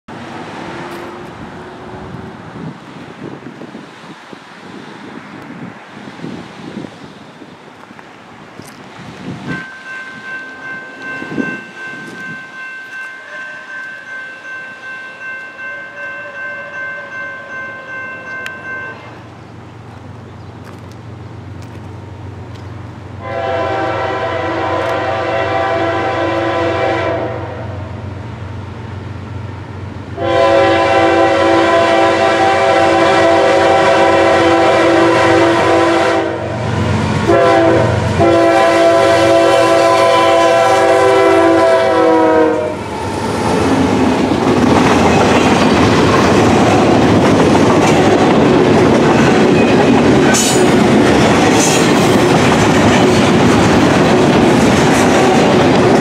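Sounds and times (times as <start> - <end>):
diesel train rumble: 0.1 - 56.0
locomotive horn blasts: 13.1 - 14.2, 15.6 - 19.2, 23.2 - 27.8, 30.2 - 36.6, 37.3 - 42.8.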